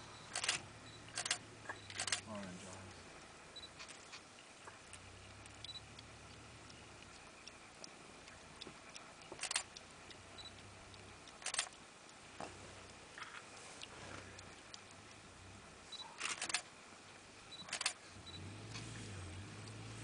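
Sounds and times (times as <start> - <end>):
low hum: 0.0 - 20.0
camera shutter clicks: 0.3 - 2.2, 9.4 - 9.7, 11.4 - 11.7, 16.2 - 16.7, 17.7 - 18.0
small ticks: 2.8 - 15.3.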